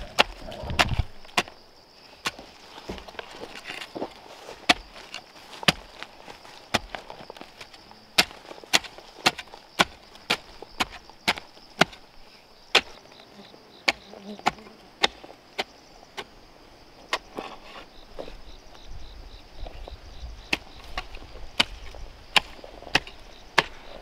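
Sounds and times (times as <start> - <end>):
high insect buzz: 9.2 - 24.0.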